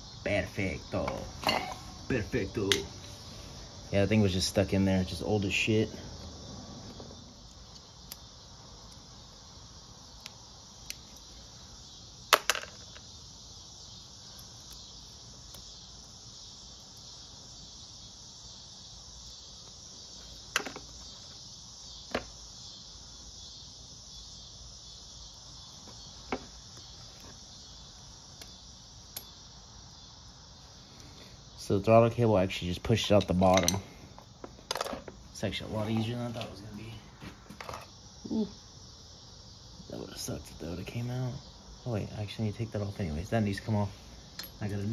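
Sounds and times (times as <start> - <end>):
steady high hiss: 0.0 - 44.9
screwdriver tapping metal parts: 33.0 - 33.8.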